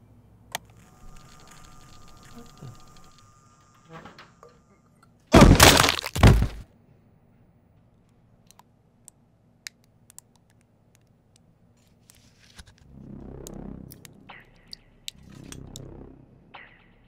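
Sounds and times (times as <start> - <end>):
loud crash: 5.4 - 6.6.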